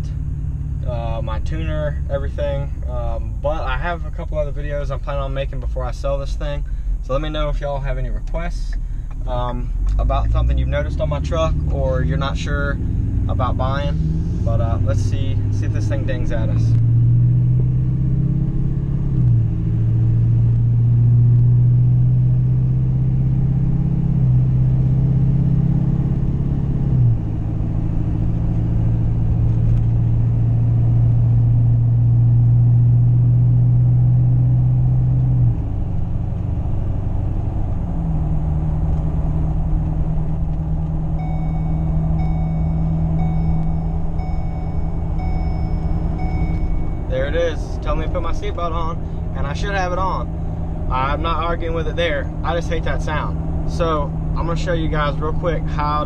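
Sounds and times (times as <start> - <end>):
diesel engine droning: 0.0 - 56.0
faint high chime: 41.2 - 47.1.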